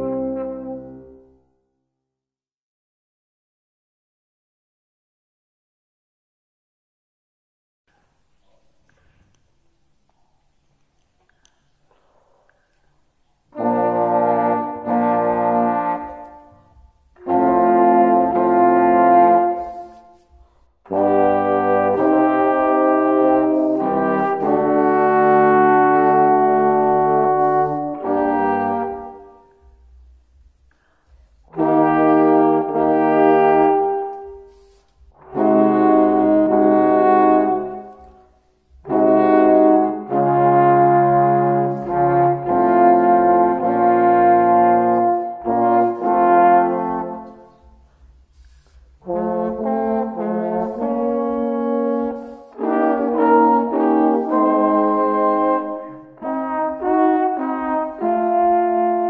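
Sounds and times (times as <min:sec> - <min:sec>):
solo trombone playing: 0:00.0 - 0:01.6, 0:13.5 - 0:30.1, 0:31.5 - 0:59.0.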